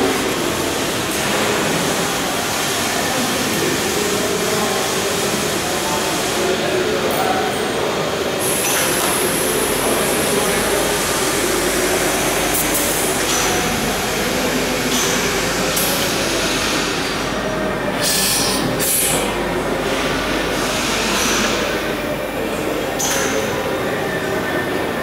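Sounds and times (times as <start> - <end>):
industrial machinery noise: 0.0 - 25.0
pneumatic air hiss: 18.0 - 19.3.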